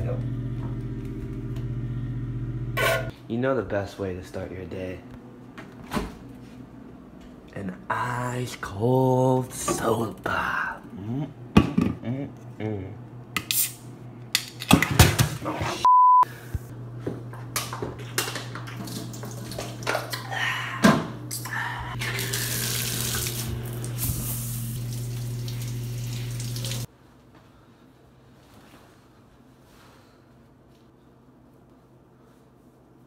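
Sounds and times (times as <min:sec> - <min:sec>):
short electronic beep: 0:15.9 - 0:16.3
water running from a tap: 0:22.0 - 0:26.9.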